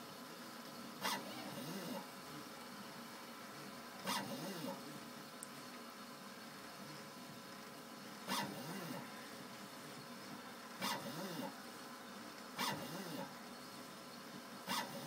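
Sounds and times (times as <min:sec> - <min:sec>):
cutter scratching metal: 0:14.7 - 0:15.0.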